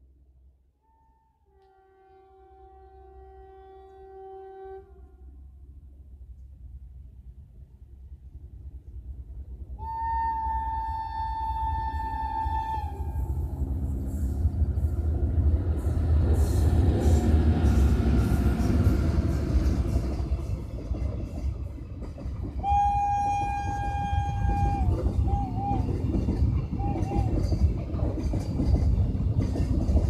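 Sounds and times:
train horn: 0:00.8 - 0:05.6, 0:09.8 - 0:14.5, 0:22.6 - 0:27.6
train wheels rumbling over rails: 0:01.6 - 0:30.0.

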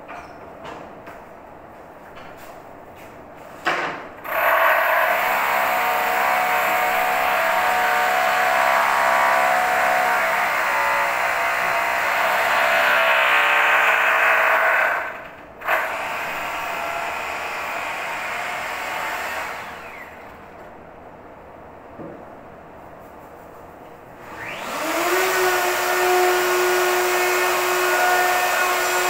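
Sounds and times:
electric router cutting wood: 0:24.3 - 0:29.0.

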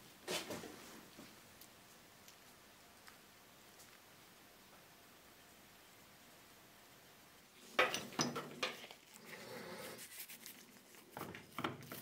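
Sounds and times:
soft rubbing: 0:08.8 - 0:11.2.

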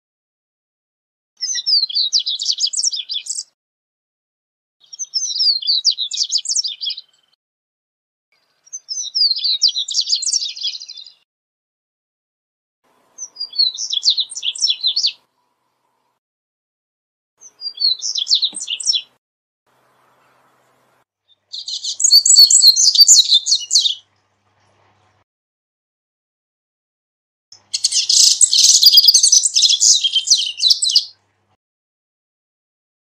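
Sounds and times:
bird twittering song: 0:01.4 - 0:03.6, 0:04.8 - 0:07.4, 0:08.4 - 0:11.2, 0:13.1 - 0:16.2, 0:17.4 - 0:24.1, 0:27.5 - 0:31.2.

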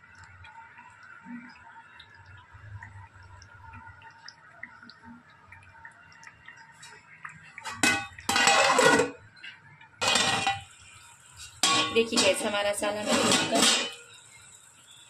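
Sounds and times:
metal cookware clattering: 0:07.6 - 0:09.2, 0:10.0 - 0:10.7, 0:11.6 - 0:14.2.

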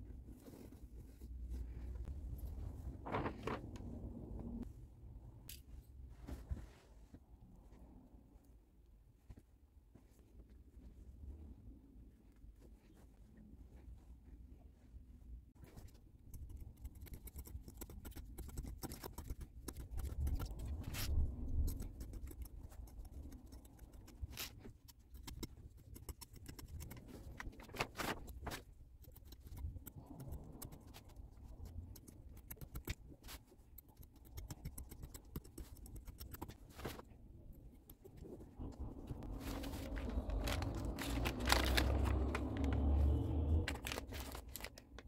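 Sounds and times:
cloth rustling: 0:00.0 - 0:04.8, 0:05.6 - 0:16.4, 0:35.7 - 0:45.0
scissors snipping fabric: 0:16.2 - 0:27.6, 0:28.2 - 0:37.0.

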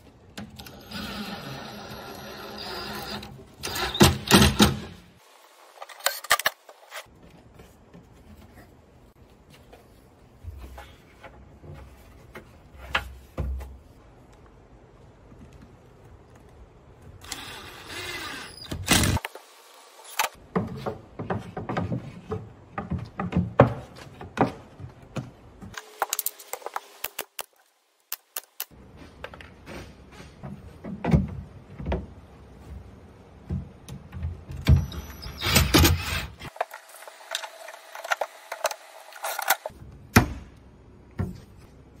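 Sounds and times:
panels knocking and rattling: 0:20.4 - 0:26.0, 0:29.5 - 0:36.8.

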